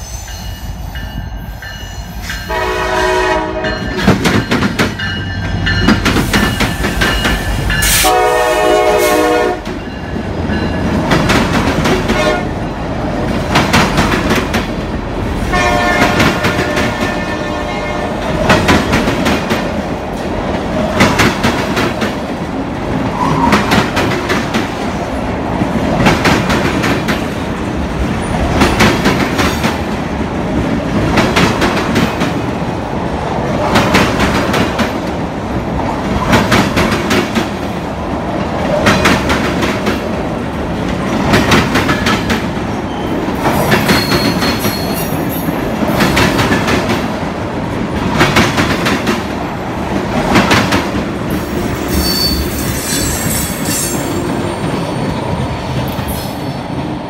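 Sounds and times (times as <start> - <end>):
train rumble: 0.0 - 57.0
train wheels clacking on rails: 0.3 - 57.0
high-pitched wheel squeals: 43.9 - 45.2, 51.8 - 54.3.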